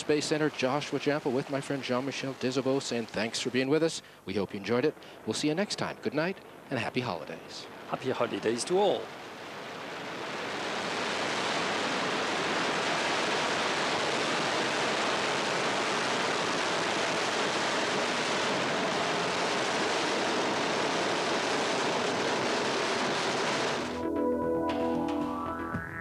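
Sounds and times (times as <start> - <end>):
rocket engine roar: 10.6 - 24.1.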